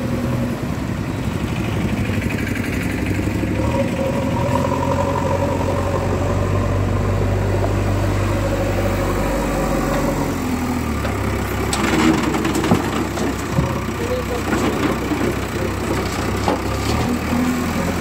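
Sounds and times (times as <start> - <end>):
diesel engine running: 0.0 - 18.0
soil and stones clattering into truck: 11.6 - 17.2.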